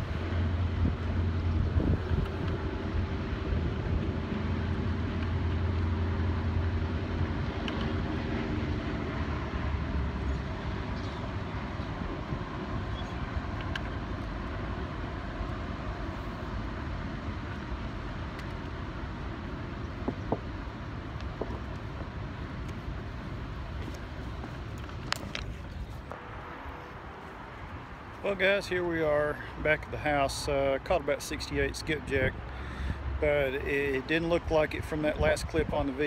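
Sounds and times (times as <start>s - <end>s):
passing engine drone: 0.0s - 24.8s.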